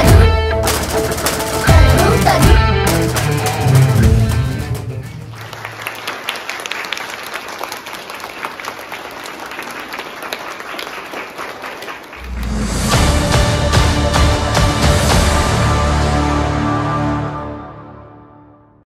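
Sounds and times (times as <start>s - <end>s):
music: 0.0s - 5.4s, 12.2s - 18.8s
crowd of children clapping: 2.9s - 12.5s.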